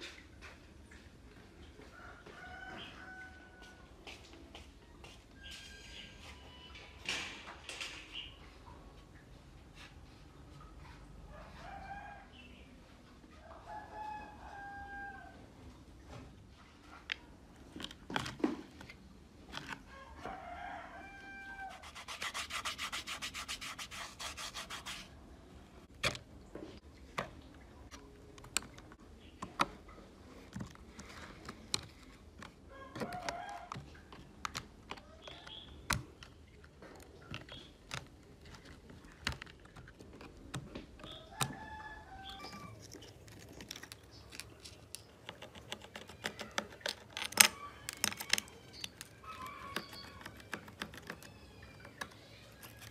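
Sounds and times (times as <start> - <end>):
screwdriver clicking and scraping: 42.8 - 52.9.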